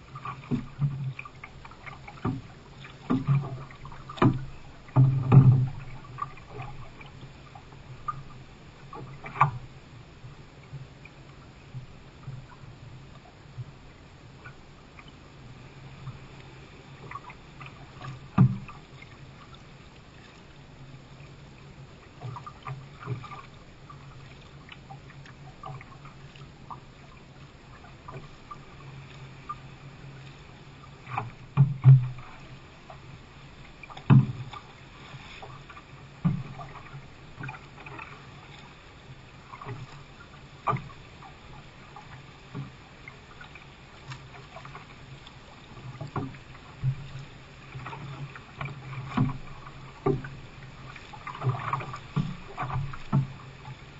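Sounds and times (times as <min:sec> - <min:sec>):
low steady hum: 0:00.0 - 0:53.9
paddle splashes: 0:00.0 - 0:53.9
water slapping hull: 0:00.0 - 0:53.9
sharp knocks on canoe: 0:02.1 - 0:06.7, 0:33.9 - 0:34.6.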